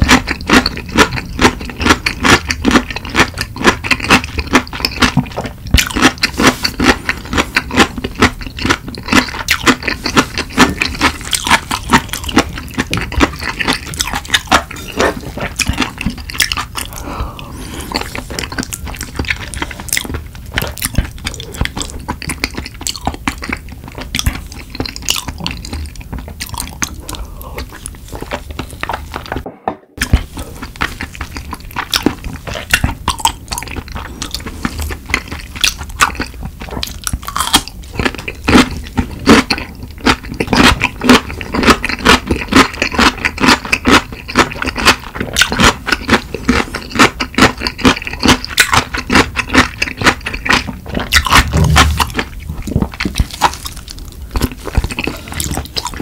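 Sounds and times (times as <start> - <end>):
crunchy chewing: 0.0 - 56.0.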